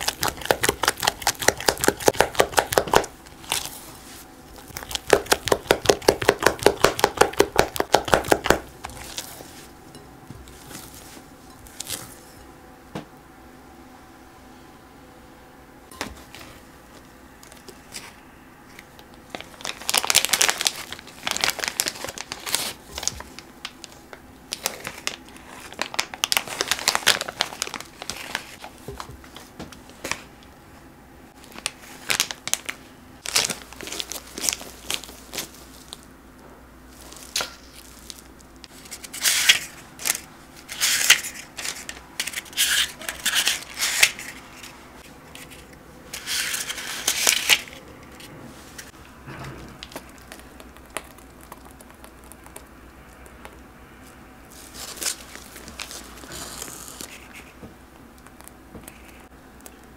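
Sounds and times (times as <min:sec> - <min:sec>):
paper muffin cups crinkling: 0:00.0 - 0:09.7, 0:17.4 - 0:30.3, 0:31.4 - 0:36.1, 0:36.9 - 0:47.8, 0:49.8 - 0:59.9
plastic bag crinkling: 0:00.0 - 0:09.7, 0:18.8 - 0:29.4, 0:31.4 - 0:36.1, 0:36.9 - 0:47.8, 0:49.8 - 0:57.5.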